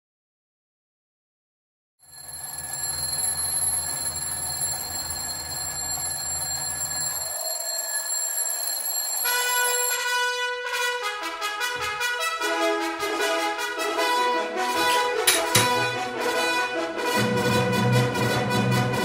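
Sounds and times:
alarm clock bells ringing: 0:02.0 - 0:10.4.

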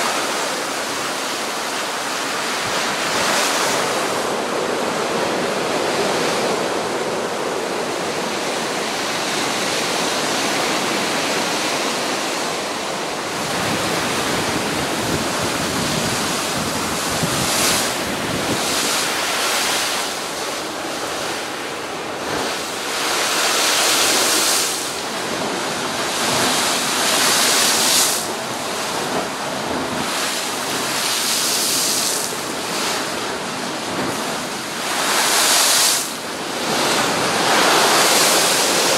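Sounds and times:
waves crashing on seawall: 0:00.0 - 0:38.9
wind blowing on microphone: 0:01.9 - 0:22.9.

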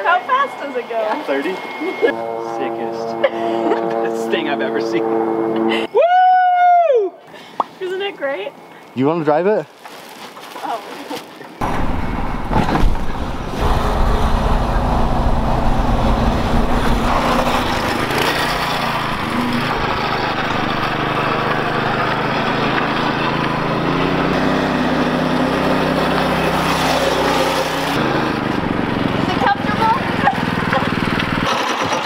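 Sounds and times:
small engine running: 0:13.2 - 0:32.0.

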